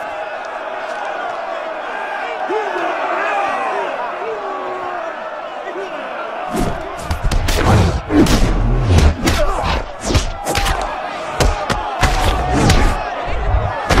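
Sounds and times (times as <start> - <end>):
crowd shouting: 0.0 - 14.0
punch impacts: 6.6 - 14.0.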